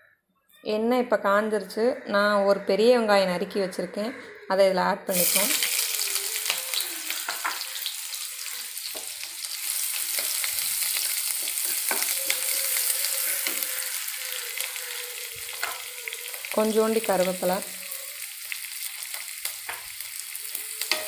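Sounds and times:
onion sizzling in hot oil: 5.1 - 21.0.

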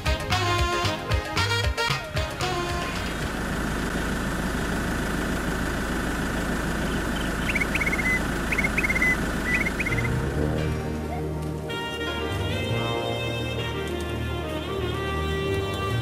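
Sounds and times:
vehicle engine idling: 0.4 - 12.7
bird chirping: 6.7 - 10.2.

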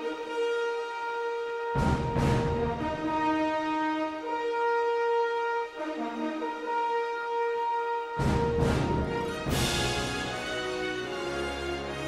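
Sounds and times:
orchestral held chords: 0.0 - 12.0
orchestral crash: 8.2 - 10.9.

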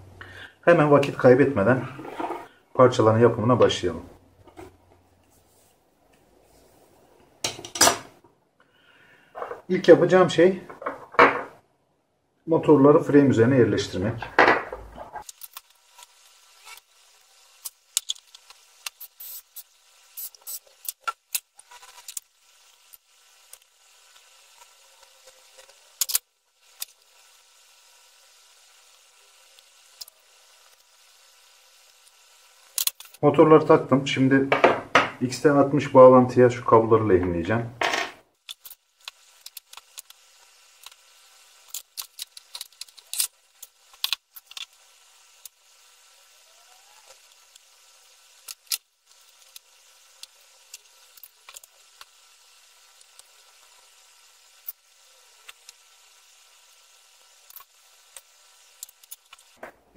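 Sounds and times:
small parts clicking and scraping: 14.7 - 33.2, 37.8 - 46.2, 46.9 - 59.6.

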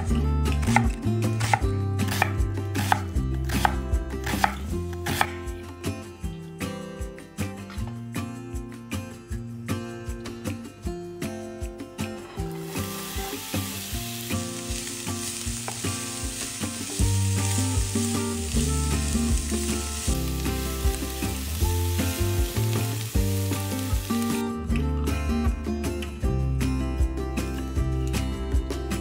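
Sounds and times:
onion sizzling in frying pan: 12.5 - 24.5.

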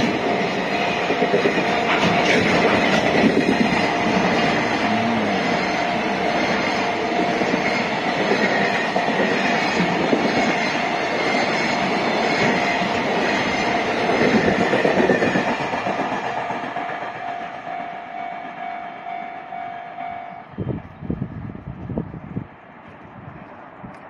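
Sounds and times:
freight train wheels rumbling: 0.0 - 24.0.

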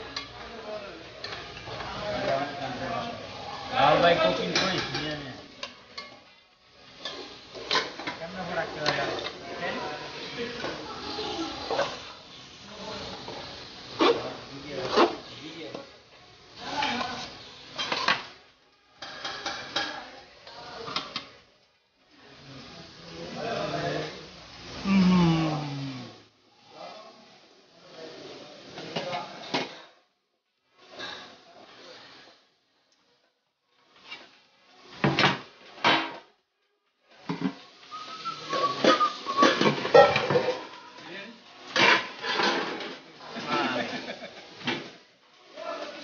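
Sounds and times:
pots and utensils clattering: 4.1 - 9.8, 16.7 - 18.4, 19.0 - 21.4, 38.5 - 40.8, 41.6 - 45.0.

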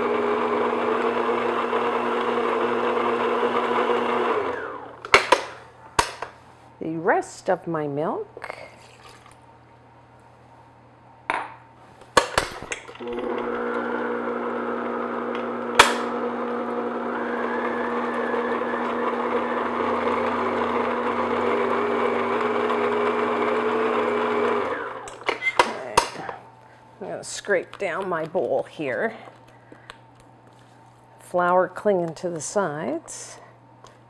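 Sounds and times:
stand mixer humming: 0.0 - 5.0, 13.0 - 25.2.

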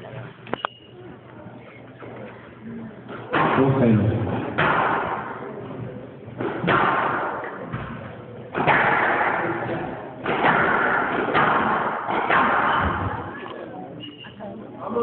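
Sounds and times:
squash ball hitting racket and walls: 3.2 - 13.4.

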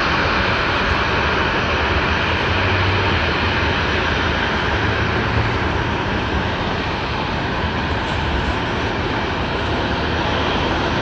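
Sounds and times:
jet engines rushing: 0.0 - 11.0.

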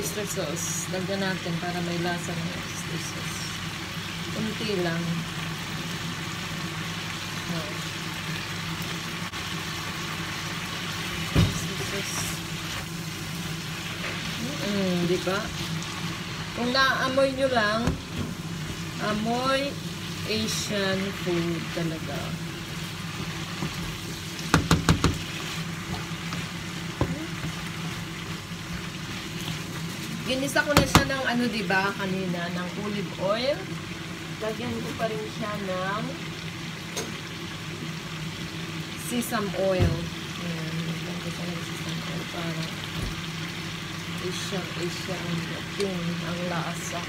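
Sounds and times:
vegetables sizzling in a frying pan: 0.0 - 47.0
spatula knocking against pan: 24.5 - 25.3.

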